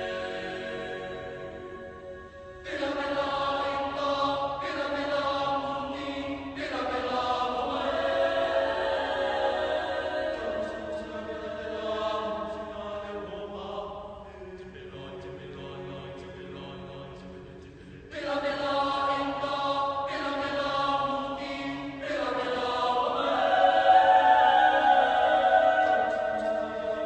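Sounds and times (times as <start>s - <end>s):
choir singing a cappella: 0.0s - 27.0s.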